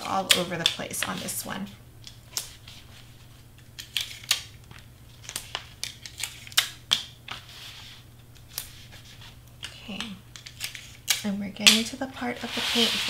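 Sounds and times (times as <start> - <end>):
cardstock and tape clicks: 3.8 - 7.2.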